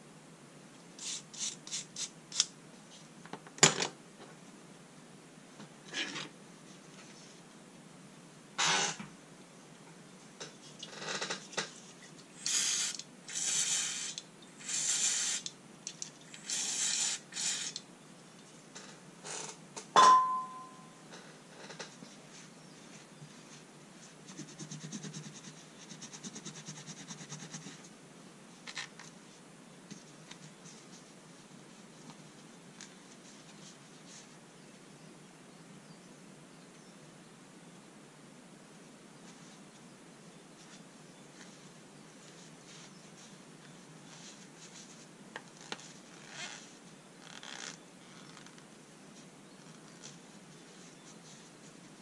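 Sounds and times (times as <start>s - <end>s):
sharp metallic clink: 20.0s - 21.0s.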